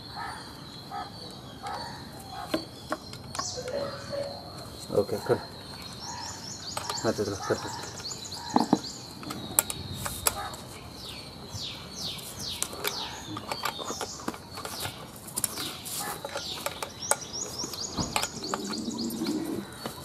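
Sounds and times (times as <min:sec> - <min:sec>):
birds chirping: 0:00.0 - 0:20.0
faint steady high tone: 0:00.6 - 0:05.8.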